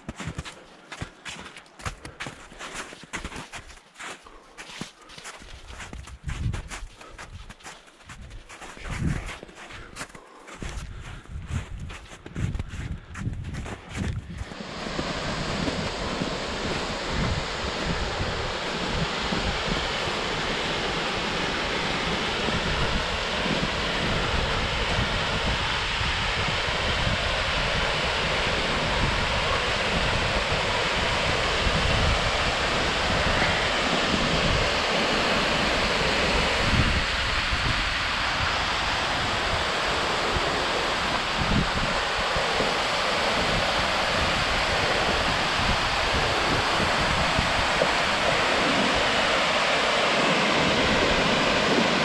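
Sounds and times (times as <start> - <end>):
wind buffeting microphone: 5.6 - 52.0
waterfall cascading: 14.4 - 52.0.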